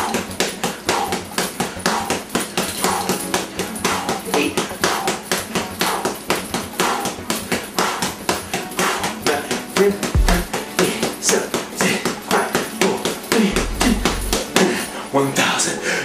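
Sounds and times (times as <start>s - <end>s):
boxing gloves punching heavy bag: 0.0s - 9.2s.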